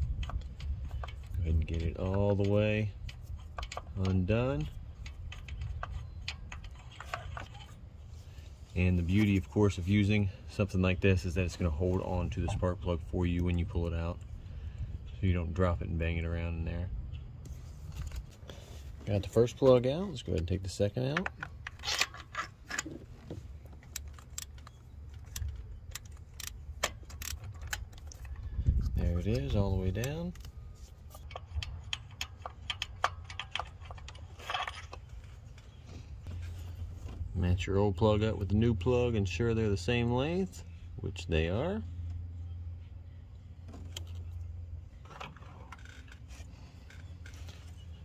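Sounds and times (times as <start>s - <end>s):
steady low hum: 0.0s - 48.0s
metal socket clicks and scrapes: 21.1s - 23.0s, 23.8s - 36.8s.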